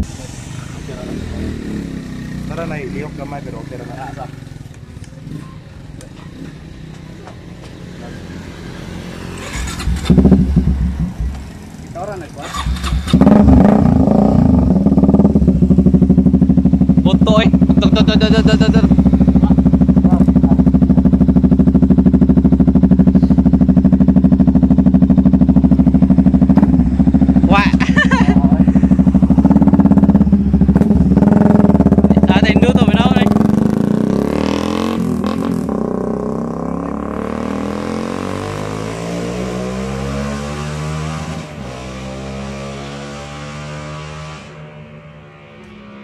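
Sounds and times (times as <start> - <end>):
motorcycle engine idling: 9.2 - 33.6.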